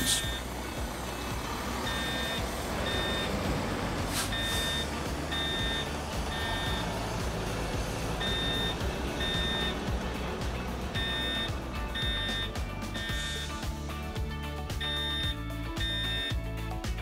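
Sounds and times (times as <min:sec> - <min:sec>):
electronic warning beeps: 0:00.0 - 0:00.5, 0:01.8 - 0:03.4, 0:04.2 - 0:06.9, 0:08.2 - 0:09.9, 0:10.9 - 0:13.6, 0:14.8 - 0:16.4
background music: 0:00.0 - 0:17.0.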